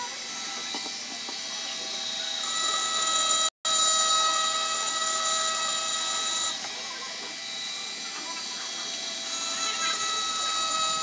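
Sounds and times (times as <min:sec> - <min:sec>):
rotary tool motor whine: 0:00.0 - 0:11.0
bit grinding into glass: 0:09.2 - 0:11.0.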